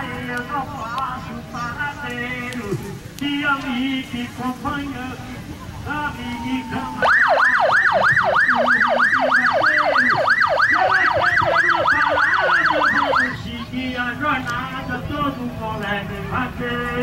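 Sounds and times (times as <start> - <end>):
police siren yelping: 6.0 - 13.5.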